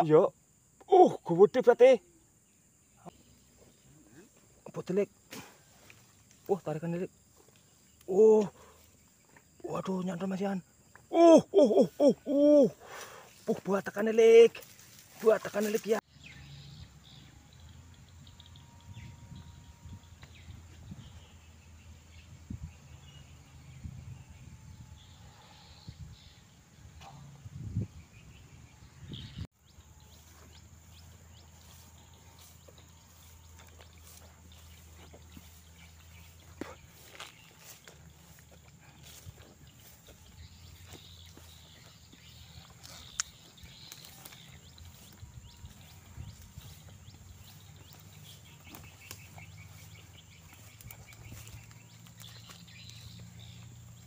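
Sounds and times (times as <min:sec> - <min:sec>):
small birds chirping: 0:00.0 - 0:54.0
footsteps through grass: 0:05.3 - 0:09.6, 0:12.8 - 0:16.0, 0:29.5 - 0:54.0
rustle of handled gear: 0:42.5 - 0:53.4.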